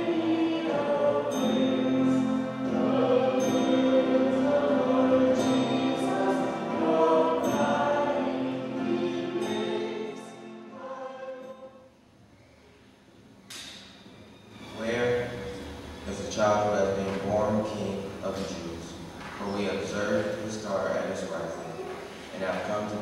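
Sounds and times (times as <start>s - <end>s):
choir singing sustained notes: 0.0s - 12.0s.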